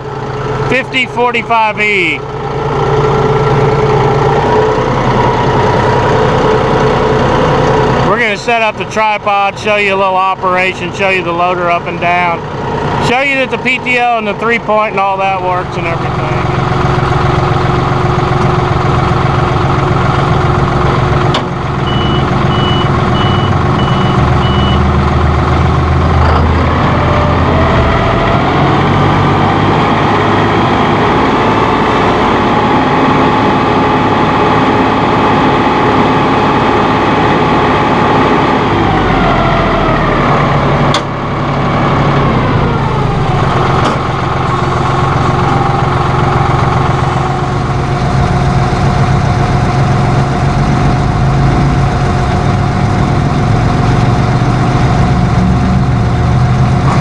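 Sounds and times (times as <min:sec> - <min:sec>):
tractor diesel engine running: 0:00.0 - 0:57.0.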